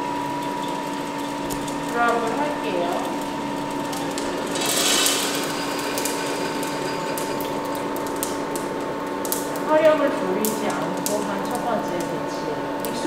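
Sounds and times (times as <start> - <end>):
roaster motors humming: 0.0 - 13.0
beans clicking as they settle: 0.5 - 13.0
coffee beans rattling into tray: 1.4 - 8.9.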